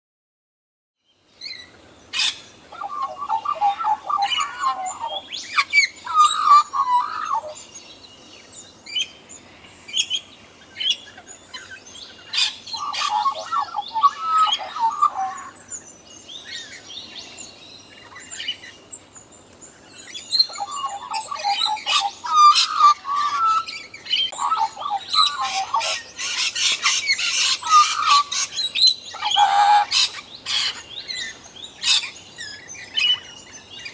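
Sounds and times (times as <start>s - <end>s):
magpies warbling song: 1.4s - 33.9s
high bird chirps: 2.2s - 7.6s, 12.4s - 15.9s, 20.0s - 33.6s.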